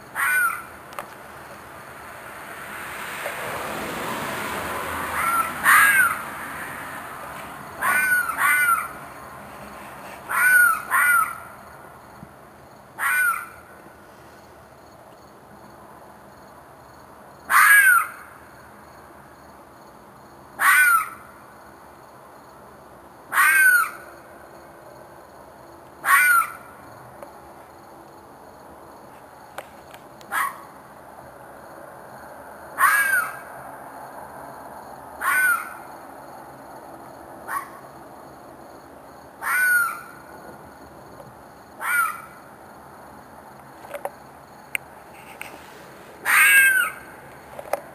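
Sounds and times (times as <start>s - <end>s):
animal screeching cries: 0.2s - 0.7s, 5.1s - 6.8s, 7.8s - 9.0s, 10.3s - 11.5s, 13.0s - 13.6s, 17.5s - 18.2s, 20.6s - 21.2s, 23.3s - 24.0s, 26.0s - 26.6s, 32.8s - 33.4s, 35.2s - 35.8s, 39.4s - 40.2s, 41.8s - 42.3s, 46.2s - 47.1s.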